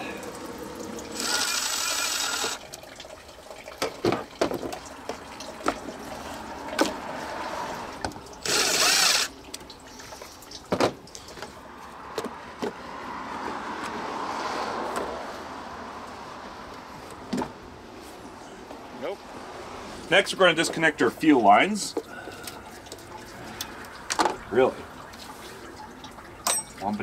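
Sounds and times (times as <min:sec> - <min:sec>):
coolant splashing from drain: 0:00.0 - 0:12.0, 0:20.6 - 0:27.0.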